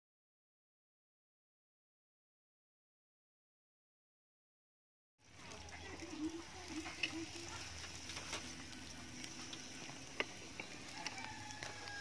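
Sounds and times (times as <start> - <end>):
eggs sizzling on a grill: 5.2 - 12.0
small pops and crackles: 5.3 - 12.0.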